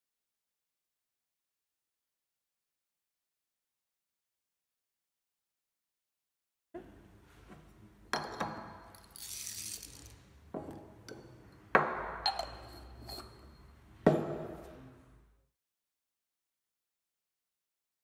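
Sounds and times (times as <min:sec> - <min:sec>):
coffee beans rattling: 0:09.0 - 0:10.2.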